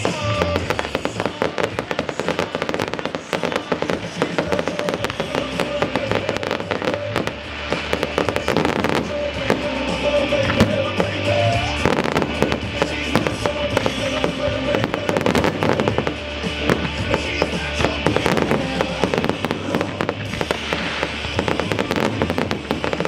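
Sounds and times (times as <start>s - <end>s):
fireworks bangs and crackling: 0.0s - 23.0s
music playing: 0.0s - 23.0s.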